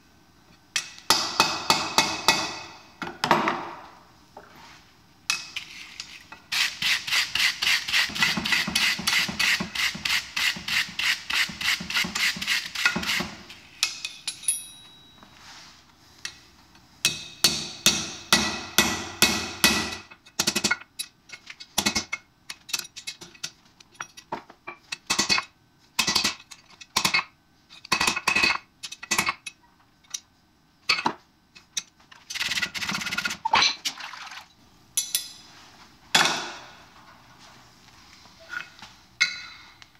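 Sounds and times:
hammer striking steel on anvil: 0.8s - 2.8s, 17.0s - 20.1s.

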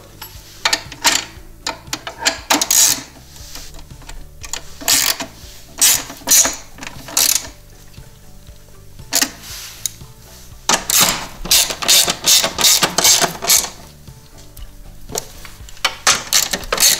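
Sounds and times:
socket ratchet clicking: 0.2s - 7.6s, 9.1s - 10.0s, 10.7s - 13.9s, 15.2s - 16.9s.

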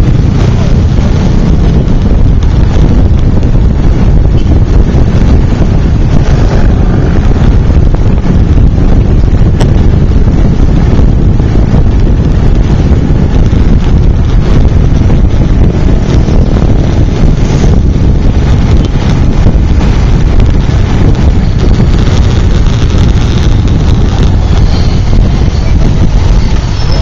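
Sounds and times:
motorcycle riding noise: 0.0s - 27.0s
wind buffeting microphone: 0.0s - 27.0s.

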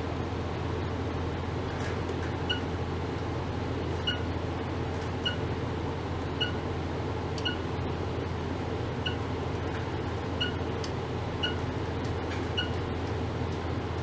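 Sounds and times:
electrical hum and hiss: 0.0s - 14.0s.

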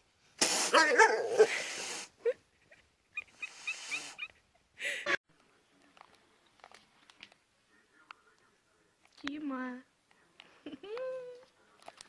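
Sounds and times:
horse whining cry: 0.7s - 1.5s.

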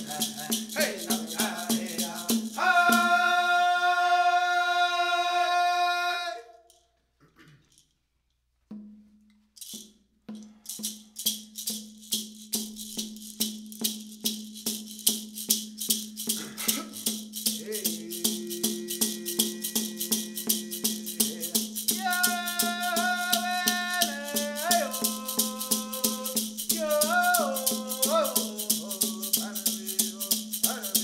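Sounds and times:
rattle shaking: 0.0s - 3.6s, 6.6s - 8.1s, 9.2s - 31.0s.

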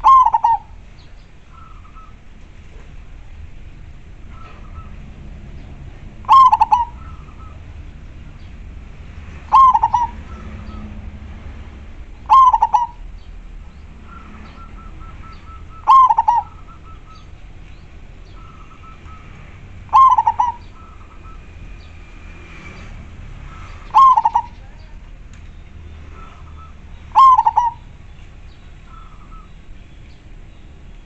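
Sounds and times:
dove cooing: 0.0s - 0.8s, 6.1s - 7.7s, 9.4s - 11.0s, 12.2s - 13.2s, 14.0s - 17.3s, 18.3s - 21.4s, 23.5s - 24.9s, 26.1s - 28.0s.

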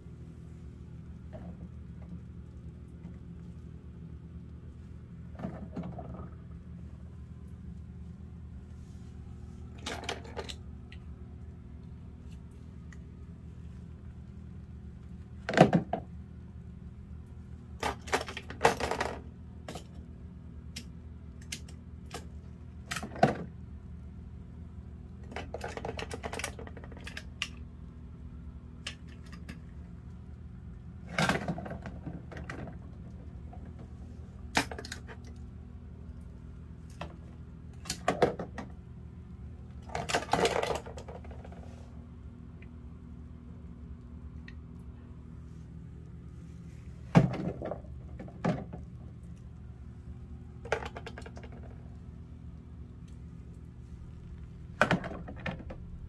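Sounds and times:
faint steady hum: 0.0s - 56.0s
toy cars clattering on plastic: 17.8s - 19.9s, 25.3s - 27.5s, 39.8s - 41.6s, 50.6s - 51.8s.

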